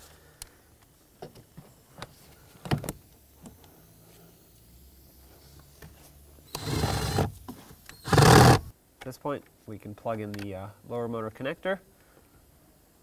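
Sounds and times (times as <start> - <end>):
cordless driver motor whir: 6.5 - 7.3, 7.9 - 8.7.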